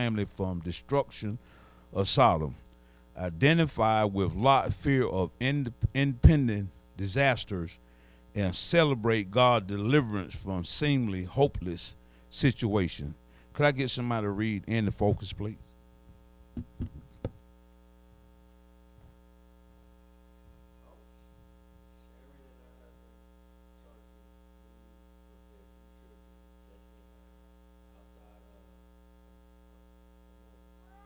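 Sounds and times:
electrical mains hum: 0.0s - 31.0s
sharp knocks: 16.6s - 17.4s.

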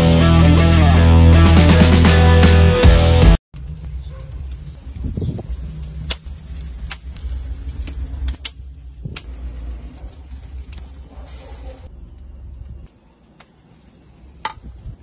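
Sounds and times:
wood fire crackling: 3.6s - 15.0s.

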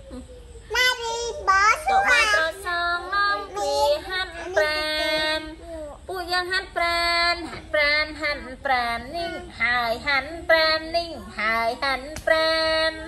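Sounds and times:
high voice singing slowly: 0.0s - 13.0s.

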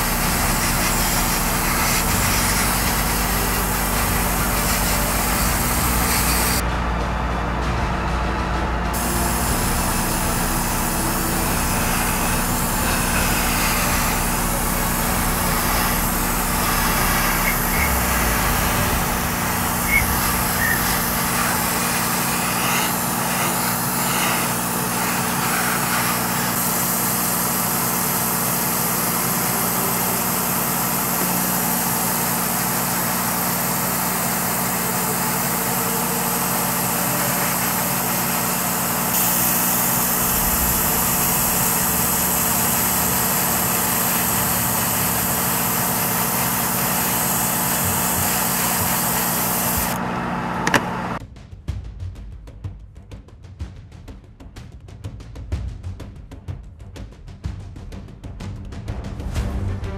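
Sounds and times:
airbrush air hiss: 0.0s - 6.6s, 9.0s - 50.0s
fan motor hum: 0.0s - 51.2s.

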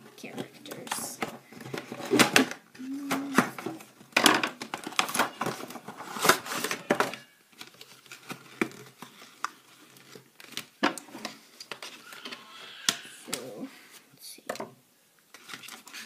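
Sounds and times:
packaging crinkling and tearing: 4.5s - 10.8s, 15.3s - 16.0s.

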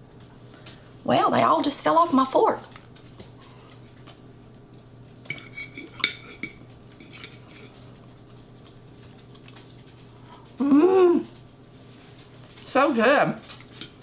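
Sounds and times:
fork scraping a plate: 5.3s - 7.9s.

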